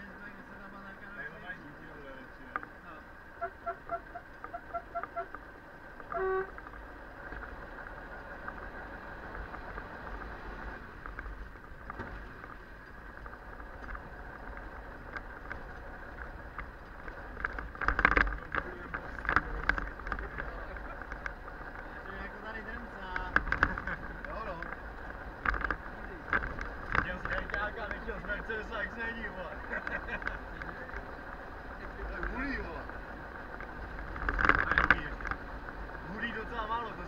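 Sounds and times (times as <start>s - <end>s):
engine and road noise: 0.0s - 37.0s
clattering knocks and rattles: 16.5s - 21.4s, 23.1s - 24.8s, 25.4s - 28.1s, 34.0s - 35.4s.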